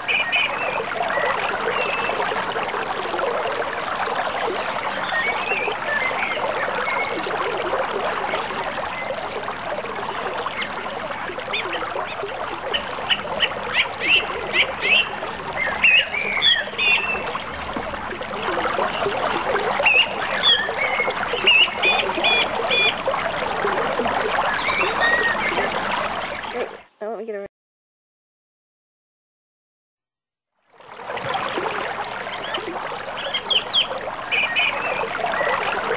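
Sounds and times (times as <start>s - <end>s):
creek water running: 0.0s - 27.2s, 30.8s - 35.9s
birds chirping: 11.5s - 19.2s, 19.8s - 23.1s, 24.3s - 27.4s, 32.3s - 35.8s.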